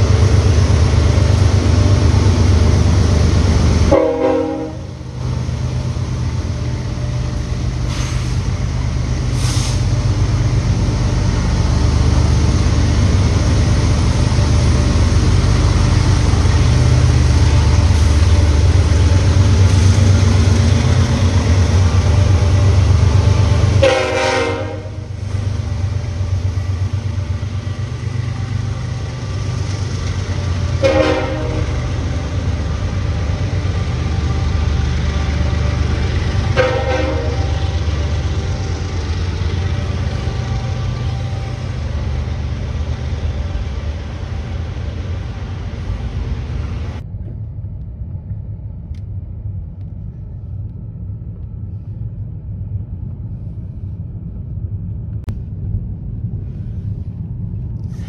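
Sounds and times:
diesel locomotive engine rumble: 0:00.0 - 0:58.0
train horn blast: 0:03.8 - 0:05.1, 0:22.2 - 0:25.4, 0:30.5 - 0:32.2, 0:33.9 - 0:38.7.

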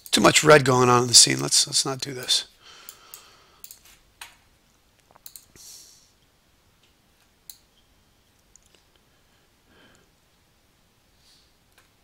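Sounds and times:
computer mouse clicks: 0:02.8 - 0:04.4, 0:05.0 - 0:05.6, 0:07.4 - 0:07.7.

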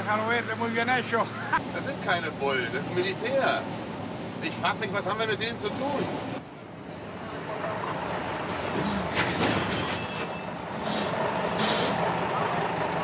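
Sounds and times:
truck engine running: 0:10.2 - 0:13.0
short hisses: 0:10.8 - 0:12.0.

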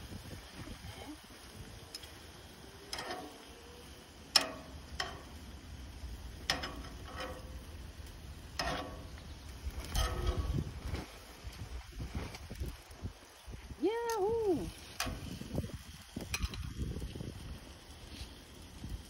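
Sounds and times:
metal tongs clinking on pan: 0:02.8 - 0:03.4, 0:04.2 - 0:05.5, 0:06.4 - 0:07.7, 0:08.5 - 0:09.2, 0:09.8 - 0:10.4, 0:16.2 - 0:16.8.

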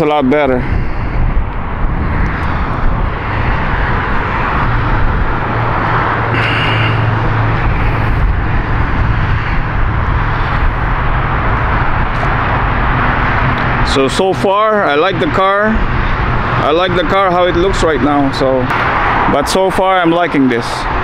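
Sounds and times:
steady rushing noise: 0:00.0 - 0:21.0
low hum: 0:00.7 - 0:14.2.

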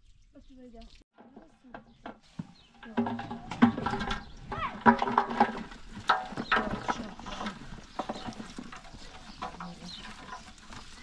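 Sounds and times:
vegetable pieces clattering into pot: 0:02.8 - 0:11.0.

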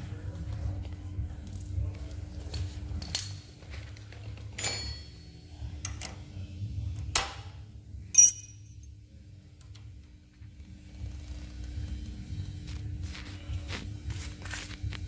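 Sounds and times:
metal parts clicking and clinking: 0:04.3 - 0:05.2, 0:08.1 - 0:08.9.

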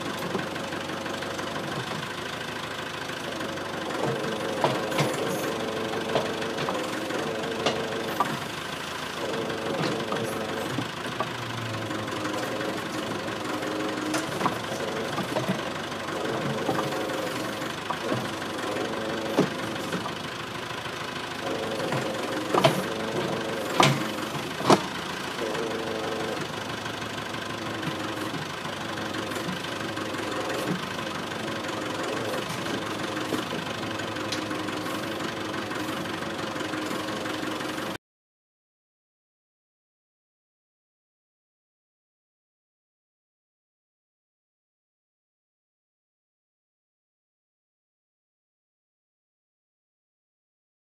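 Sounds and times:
diesel engine running: 0:00.0 - 0:38.0.

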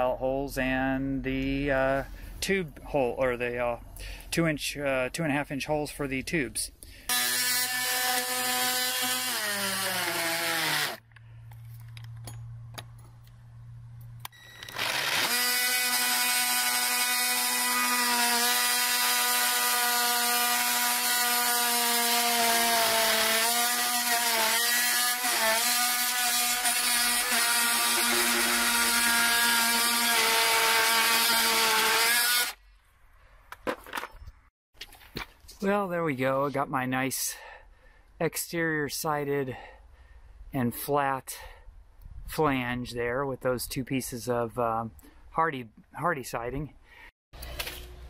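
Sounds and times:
oscillating multi-tool cutting wood: 0:07.1 - 0:11.0, 0:14.3 - 0:32.6.

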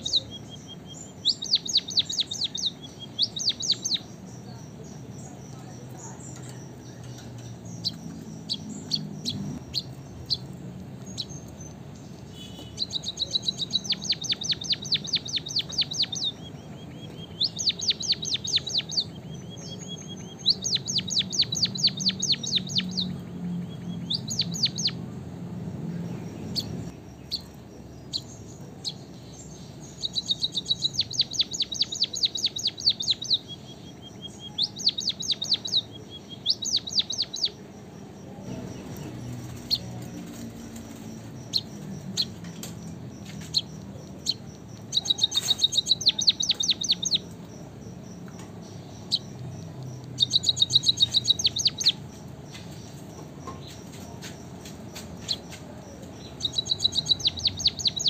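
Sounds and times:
bird song with rapid clicking notes: 0:00.0 - 0:25.0, 0:26.0 - 0:58.0.

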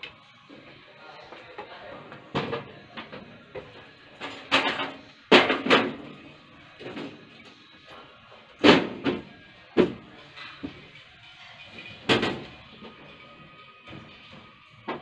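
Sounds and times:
metal clanks and bangs: 0:04.2 - 0:06.0, 0:11.7 - 0:12.6.

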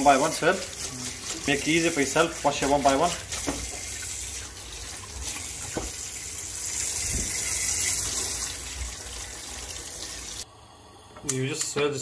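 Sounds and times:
tap water splashing into sink: 0:02.6 - 0:06.2, 0:07.0 - 0:09.0.

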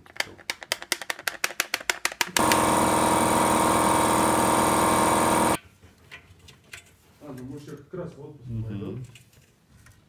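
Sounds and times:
power tool running: 0:02.4 - 0:05.6.

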